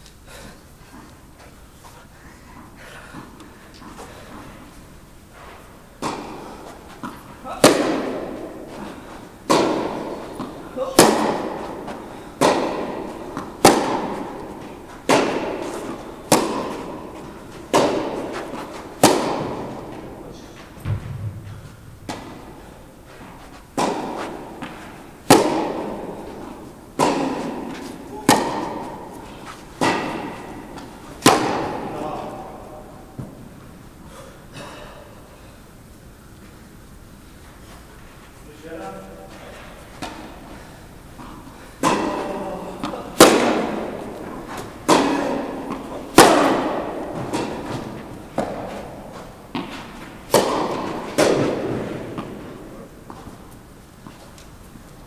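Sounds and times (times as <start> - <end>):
tennis ball hit by rackets: 6.0 - 33.4, 39.9 - 40.4, 41.2 - 54.5.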